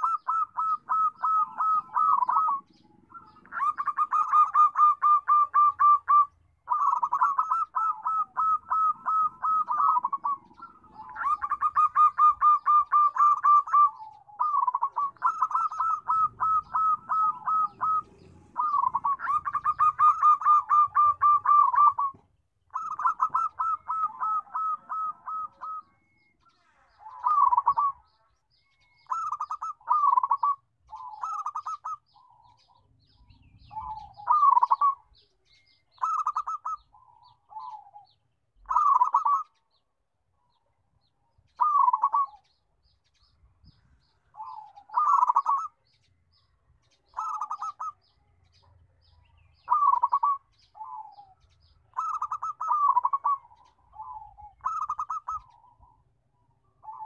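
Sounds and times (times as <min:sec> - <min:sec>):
dove cooing: 0:00.0 - 0:39.7, 0:40.6 - 0:57.0.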